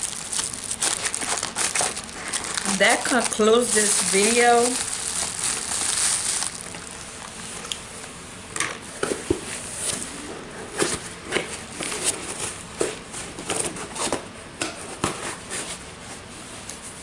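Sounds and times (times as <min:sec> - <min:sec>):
person chewing candy: 0:00.0 - 0:03.1, 0:04.7 - 0:07.8.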